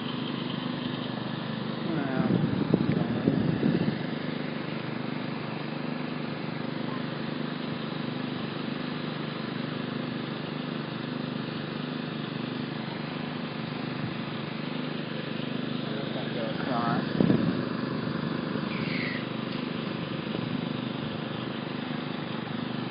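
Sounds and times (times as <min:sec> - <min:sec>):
engine running: 0:00.0 - 0:22.9
outdoor background noise: 0:00.0 - 0:22.9.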